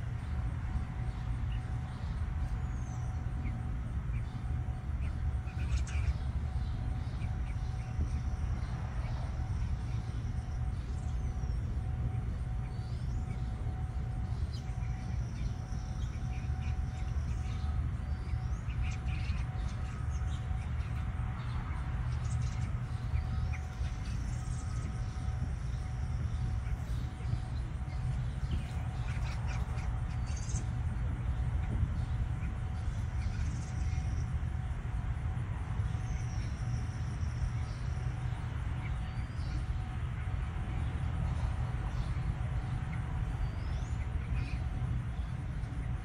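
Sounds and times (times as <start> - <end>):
faint hum: 0.0 - 46.0
high bird calls: 0.2 - 34.8.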